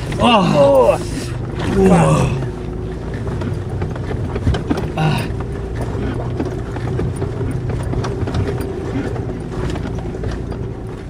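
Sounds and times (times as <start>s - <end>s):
body and suspension rattles: 0.0s - 11.0s
car engine running under load: 0.0s - 11.0s.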